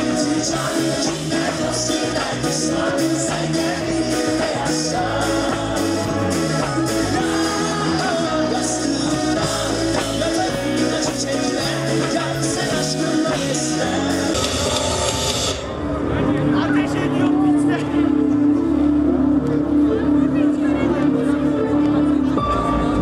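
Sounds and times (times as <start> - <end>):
live band with vocals: 0.0 - 16.1.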